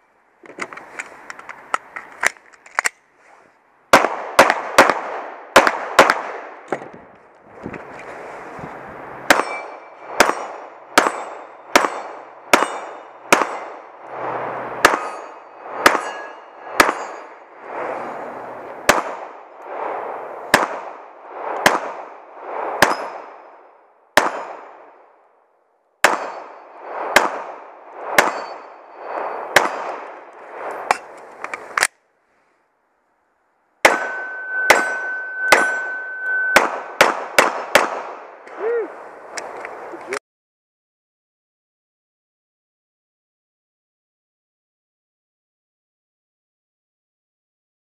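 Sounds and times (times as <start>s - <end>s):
pistol shots echoing: 3.9s - 6.4s, 9.3s - 13.8s, 14.8s - 16.2s, 16.8s - 17.2s, 18.9s - 19.3s, 24.2s - 24.9s, 26.0s - 26.6s, 28.2s - 28.6s, 33.8s - 38.2s
bullets clanging on steel targets: 9.3s - 10.4s, 11.0s - 13.6s, 14.8s - 17.4s, 28.2s - 28.7s, 33.9s - 36.7s
steel plate ringing: 14.9s - 17.4s, 33.9s - 36.6s.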